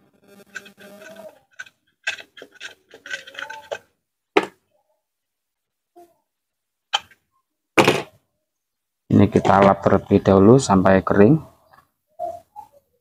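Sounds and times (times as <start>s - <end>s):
hand rubbing plastic jar: 0.5s - 3.8s.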